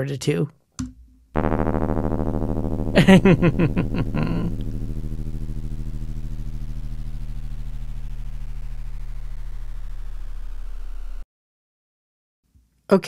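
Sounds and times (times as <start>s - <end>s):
synthesized inharmonic tone: 1.4s - 11.2s
voice-like warble: 3.0s - 4.6s.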